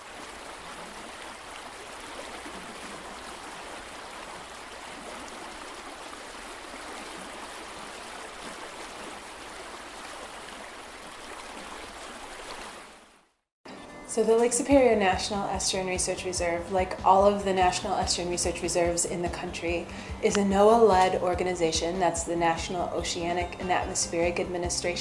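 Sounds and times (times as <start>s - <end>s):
running water rushing: 0.0s - 13.4s.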